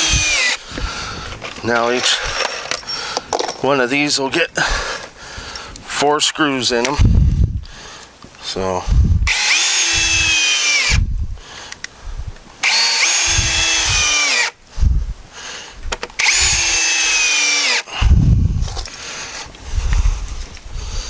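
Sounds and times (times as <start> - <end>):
cordless drill driving screws into wood: 0.0 - 0.9, 9.3 - 11.0, 12.6 - 14.6, 15.9 - 17.9.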